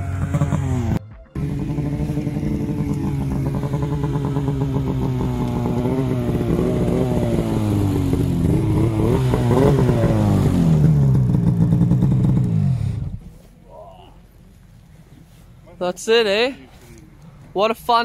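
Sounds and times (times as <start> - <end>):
snowmobile engine revving: 0.0 - 13.2.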